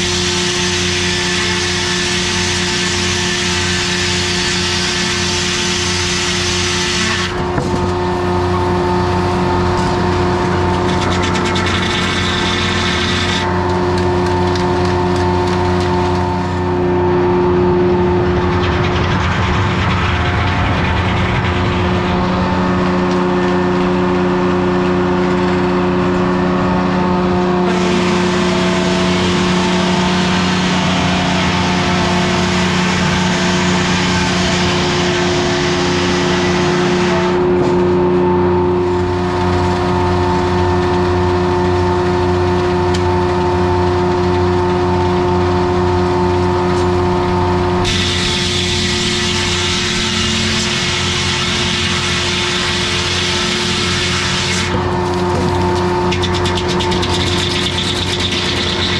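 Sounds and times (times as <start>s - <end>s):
diesel engine running: 0.0s - 58.9s
loud rushing hiss: 47.8s - 52.8s.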